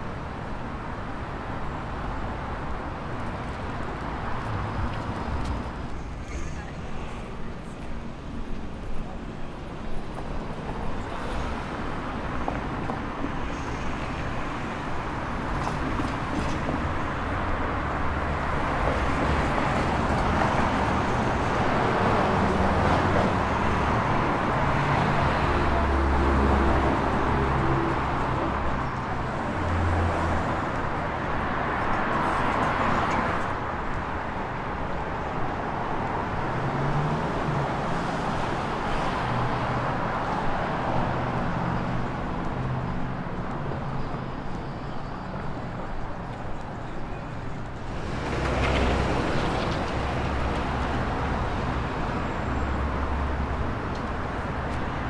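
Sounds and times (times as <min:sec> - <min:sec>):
cars passing: 0:01.2 - 0:44.6, 0:45.3 - 0:55.0.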